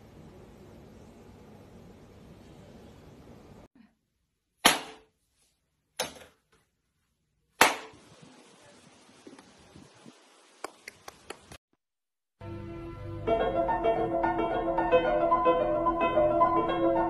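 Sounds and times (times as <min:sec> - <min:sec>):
steady low hiss: 0:00.0 - 0:03.7, 0:06.9 - 0:11.6.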